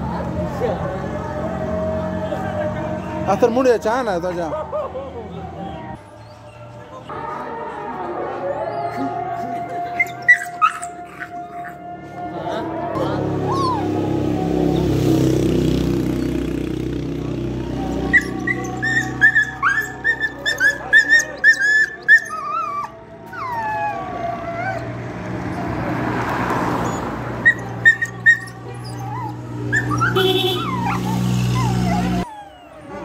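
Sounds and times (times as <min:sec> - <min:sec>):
dog whimpering: 0:09.8 - 0:11.9, 0:13.4 - 0:14.0, 0:17.8 - 0:25.8, 0:26.8 - 0:33.0.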